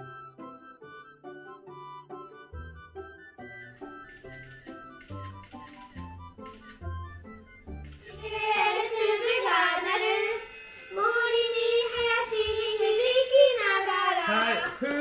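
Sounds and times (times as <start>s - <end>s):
soft instrumental notes: 0.0s - 15.0s
children singing: 8.1s - 15.0s.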